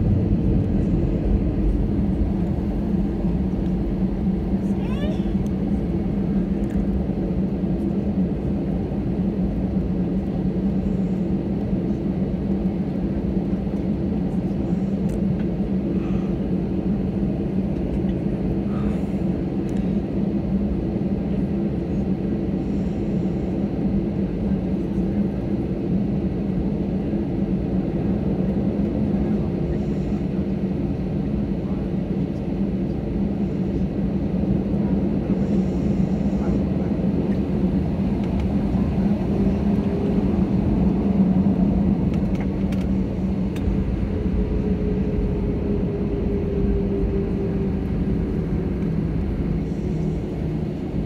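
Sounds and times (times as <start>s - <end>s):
airplane cabin hum while taxiing: 0.0s - 51.0s.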